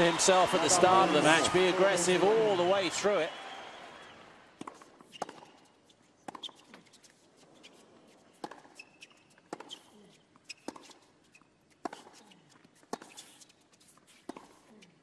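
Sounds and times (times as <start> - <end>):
racquets striking tennis ball: 4.6 - 6.9, 8.4 - 9.9, 10.5 - 13.4
court shoes squeaking: 4.6 - 15.0.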